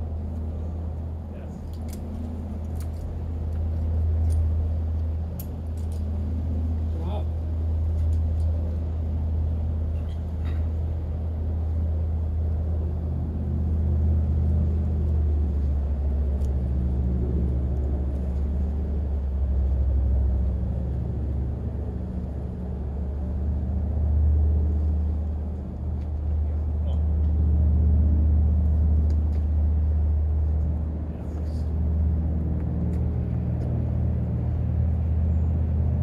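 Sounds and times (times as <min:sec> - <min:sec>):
low rumble with hum: 0:00.0 - 0:36.0.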